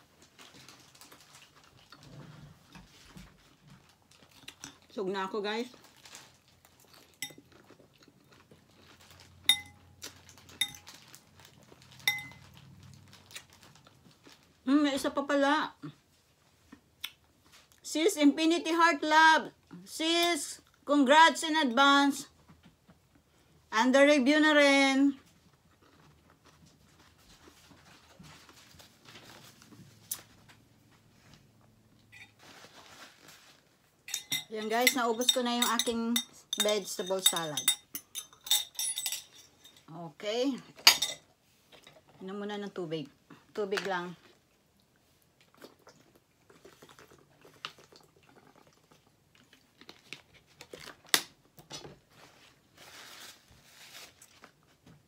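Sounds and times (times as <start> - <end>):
faint chewing: 0.2 - 5.0, 5.7 - 14.6, 25.2 - 32.6, 44.2 - 51.1
metal fork clinking ceramic bowl: 7.2 - 7.4, 9.5 - 9.8, 10.6 - 10.8, 12.0 - 12.4, 32.1 - 32.4, 34.1 - 39.8
faint close-up rustling: 25.1 - 37.6, 51.8 - 55.0.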